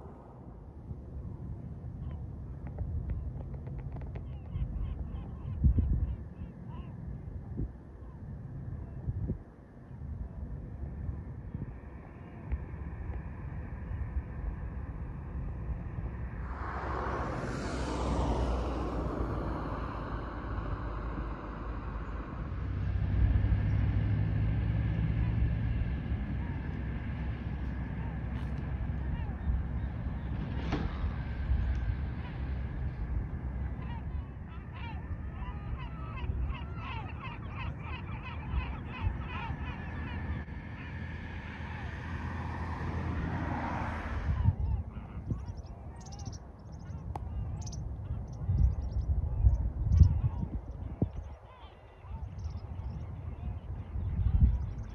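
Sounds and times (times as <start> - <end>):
wind rumble on microphone: 0.0 - 54.9
vehicle passing by: 12.8 - 34.8, 35.4 - 45.4
flamingos honking: 33.7 - 42.8.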